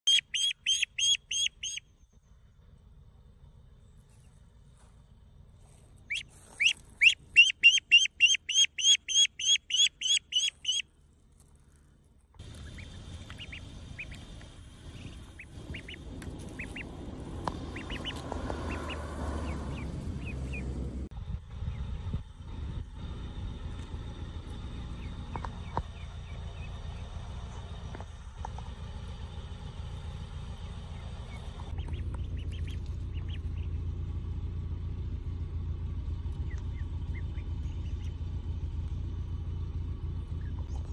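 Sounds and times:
duckling peeping: 0.0s - 2.0s, 6.0s - 10.9s, 12.4s - 20.8s, 24.9s - 27.2s, 30.9s - 33.8s, 36.3s - 38.2s
low rumble: 10.5s - 40.9s
wings flapping: 12.4s - 20.0s.

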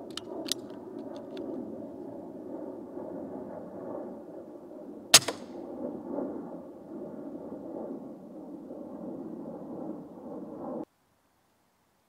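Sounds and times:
air rifle shot: 5.1s - 5.6s.

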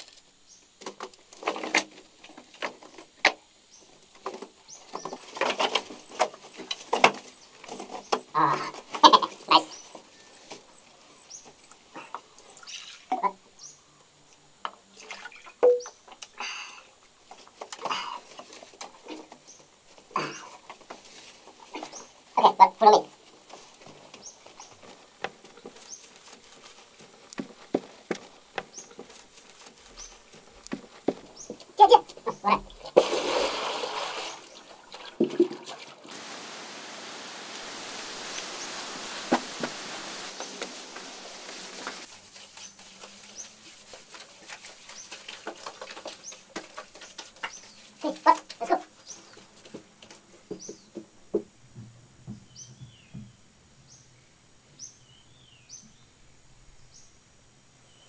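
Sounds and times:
sipping: 31.8s - 46.4s
water splashing onto earth: 32.7s - 42.1s.

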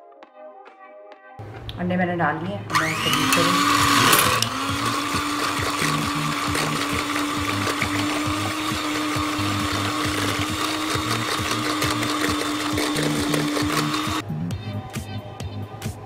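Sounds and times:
background music with steady beat: 0.0s - 2.7s, 3.6s - 16.0s
electric hand mixer whisking: 2.7s - 14.2s.

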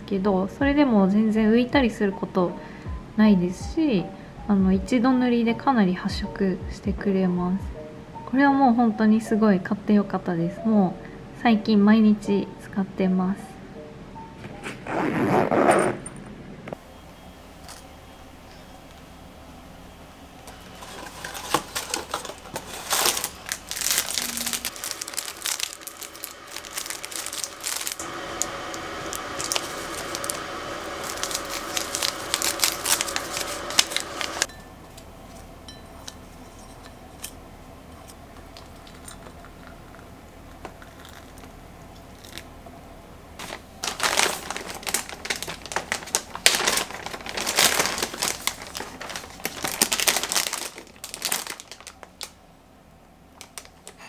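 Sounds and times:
plastic bag crinkling: 20.6s - 34.5s, 40.8s - 41.5s, 42.1s - 42.5s, 43.4s - 52.4s, 53.4s - 54.0s
packaging crinkling and tearing: 20.8s - 34.5s, 40.8s - 41.5s, 42.1s - 42.5s, 43.4s - 52.4s, 53.4s - 54.0s
hot water pouring into mug: 25.9s - 34.5s.

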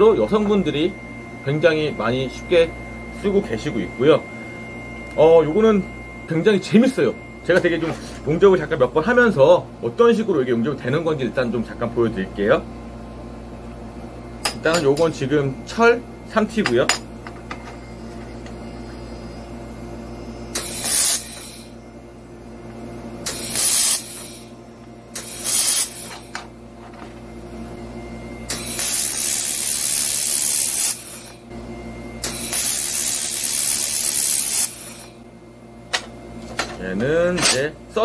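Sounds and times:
laser welder hissing: 20.5s - 21.8s, 23.2s - 26.4s, 28.5s - 31.5s, 32.2s - 35.2s.

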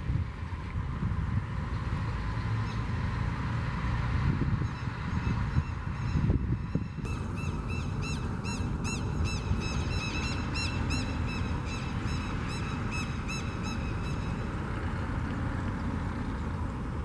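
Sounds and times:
jet engines rumbling: 3.8s - 17.0s
bird chirping: 6.8s - 14.4s.

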